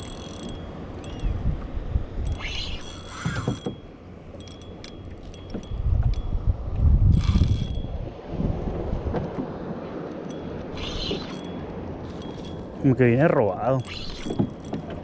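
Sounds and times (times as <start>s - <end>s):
fishing reel ratchet clicking: 0.0s - 1.3s, 2.2s - 3.6s, 7.1s - 7.8s.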